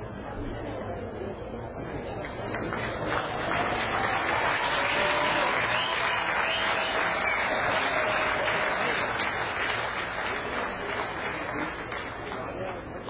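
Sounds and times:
crowd applauding: 2.2 - 13.0.

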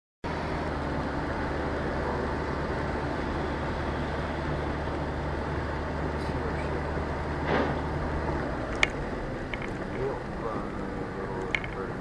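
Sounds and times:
car engine hum: 0.2 - 12.0
tyres hissing on wet road: 0.4 - 8.6.

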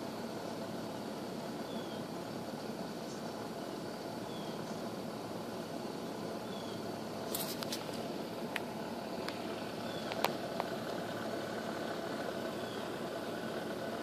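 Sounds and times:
steady mechanical hum: 0.0 - 14.0
sharp clicks: 10.0 - 10.8.

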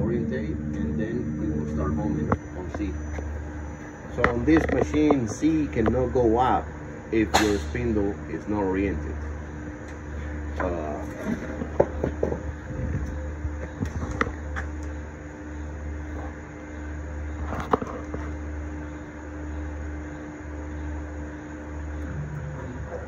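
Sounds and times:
axis drive motors running: 0.0 - 23.0
low pulsing hum: 0.0 - 23.0.

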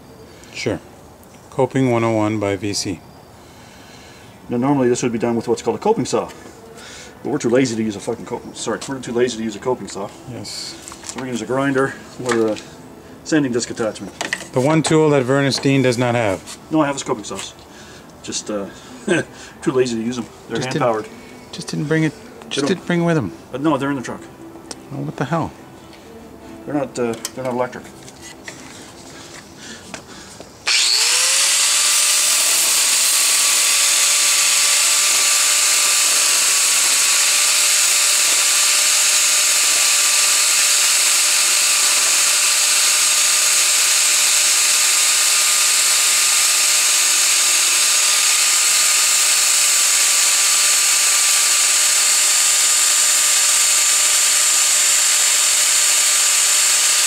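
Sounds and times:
angle grinder sanding wood: 30.7 - 57.0.

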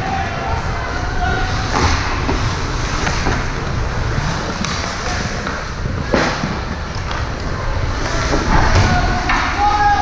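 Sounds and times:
crowd at youth game: 0.0 - 10.0.

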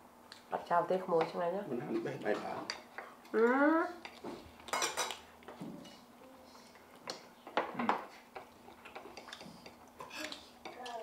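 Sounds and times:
dishes and utensils clattering: 4.7 - 6.0.

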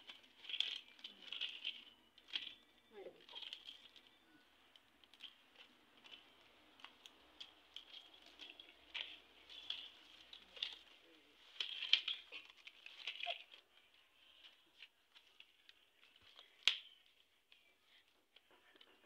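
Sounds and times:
palm leaflets clicking and rustling: 0.0 - 19.0.

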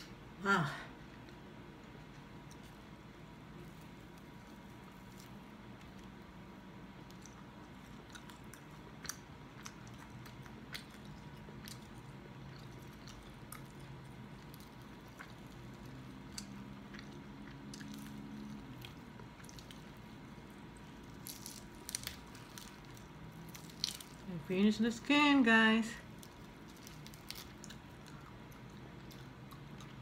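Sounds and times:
crispy skin crackling: 3.6 - 6.4, 7.0 - 24.4, 26.0 - 30.0
chewing: 7.0 - 24.2, 26.0 - 30.0.

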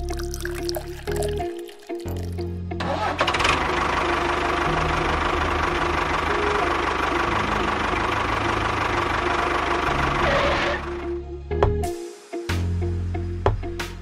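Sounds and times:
tractor engine knocking clatter: 2.8 - 10.2.

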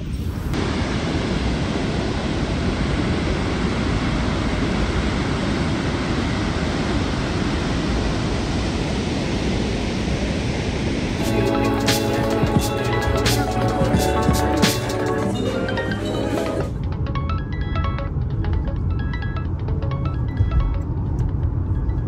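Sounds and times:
music: 11.2 - 22.0.

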